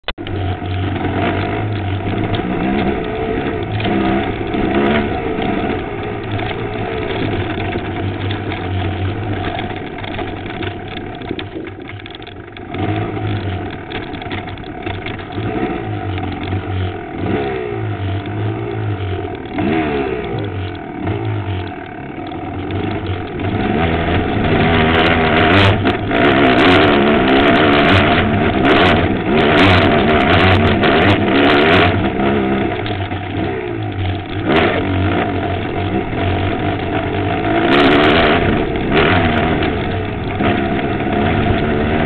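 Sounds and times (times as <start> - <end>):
dirt bike engine revving: 0.0 - 42.0
knocks and rattles: 0.0 - 42.0.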